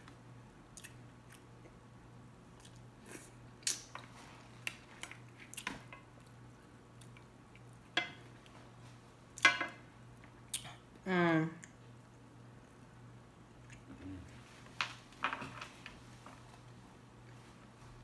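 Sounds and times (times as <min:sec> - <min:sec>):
chewing food: 0:00.7 - 0:01.8, 0:02.6 - 0:08.5.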